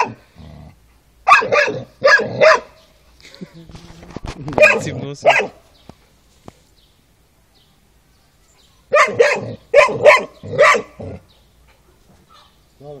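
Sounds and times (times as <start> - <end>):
puppy barking: 0.0 - 0.2, 1.2 - 2.8, 4.6 - 5.6, 8.9 - 11.2.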